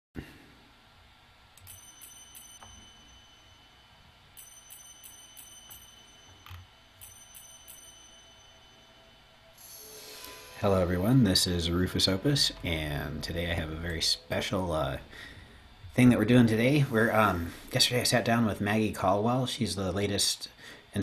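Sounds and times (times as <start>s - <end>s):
faint steady hum: 0.2s - 21.0s
high tinkling chime notes: 1.7s - 14.7s.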